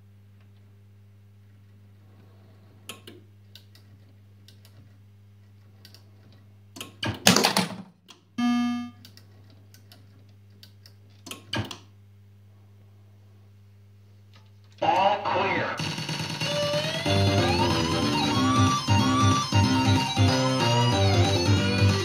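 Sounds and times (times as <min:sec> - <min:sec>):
electrical hum: 0:00.0 - 0:22.0
short electronic tone: 0:08.4 - 0:09.0
loud burst of noise: 0:15.8 - 0:19.0.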